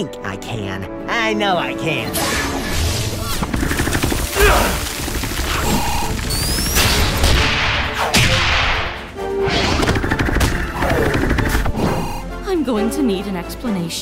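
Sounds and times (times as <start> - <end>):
action background music: 0.0 - 14.0
cartoon hits and crashes: 5.6 - 10.6.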